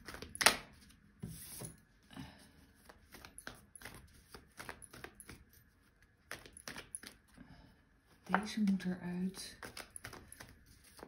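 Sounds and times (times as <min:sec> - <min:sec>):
cards being shuffled: 0:00.0 - 0:01.8, 0:02.8 - 0:07.2, 0:09.6 - 0:11.0.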